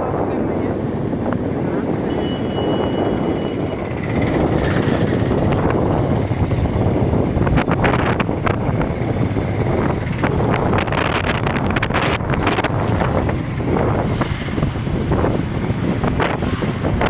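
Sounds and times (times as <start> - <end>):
road noise: 0.0 - 17.0
wind on microphone: 0.0 - 17.0
scooter engine: 3.6 - 17.0.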